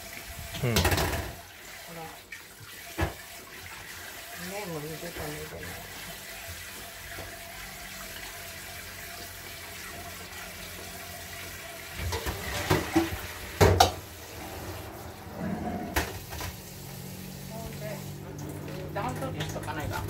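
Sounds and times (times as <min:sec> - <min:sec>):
tap water running into sink: 0:00.0 - 0:20.0
sharp knocks and clatters: 0:00.8 - 0:01.4.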